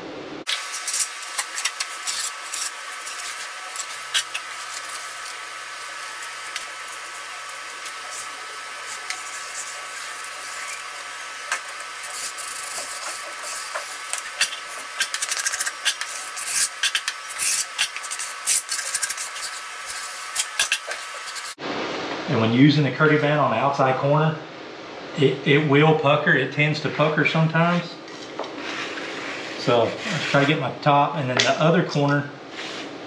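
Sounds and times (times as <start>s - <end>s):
blade scraping mortar: 0.5s - 21.6s.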